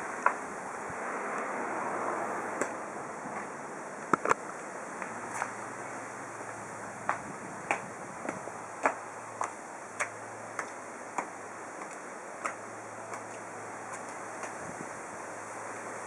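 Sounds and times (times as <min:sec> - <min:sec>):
background hiss: 0:00.0 - 0:16.0
high heels on concrete: 0:06.4 - 0:14.7.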